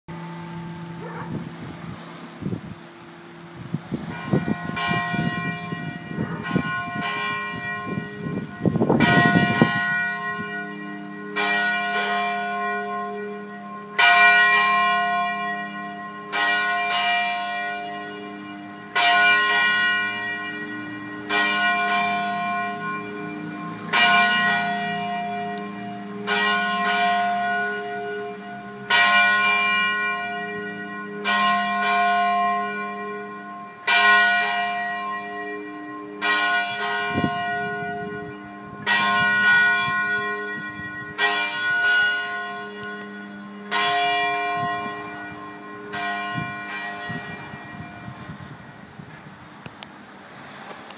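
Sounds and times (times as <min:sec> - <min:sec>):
church bells ringing: 0:00.1 - 0:49.3
wind rumble on microphone: 0:00.5 - 0:13.0, 0:36.2 - 0:49.9.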